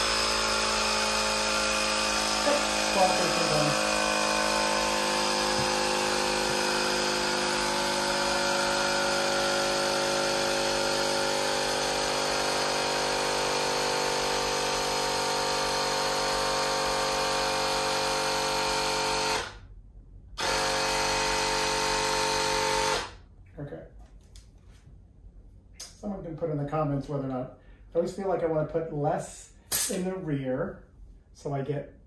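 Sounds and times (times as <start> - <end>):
tire inflator running: 0.0 - 19.6, 20.4 - 23.2.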